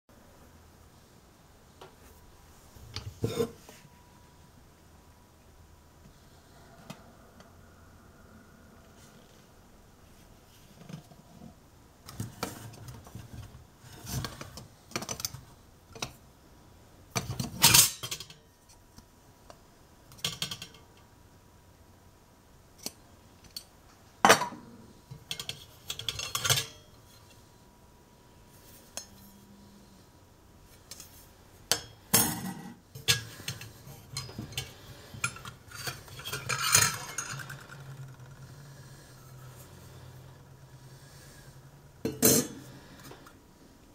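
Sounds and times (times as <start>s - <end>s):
metal clinks and scrapes: 33.0s - 39.7s.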